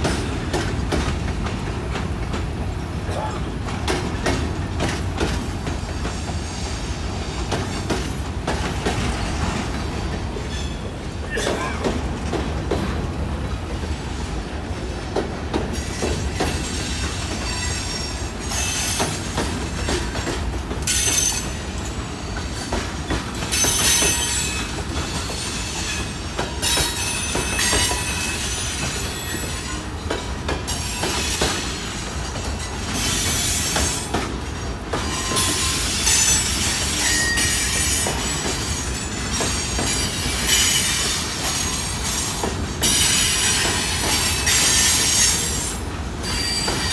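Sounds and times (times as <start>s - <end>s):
clicking over rail joints: 0.0s - 6.4s, 7.4s - 17.5s, 18.5s - 46.9s
train wheels rumbling on rail: 0.0s - 46.9s
wheel squeal and hiss: 15.8s - 19.2s, 23.5s - 29.9s, 35.0s - 46.9s.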